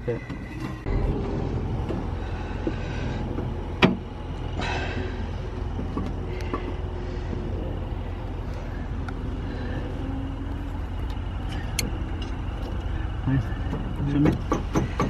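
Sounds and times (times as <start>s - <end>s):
steady low rumble: 0.0s - 15.0s
metal knocks: 0.2s - 4.1s, 13.5s - 15.0s.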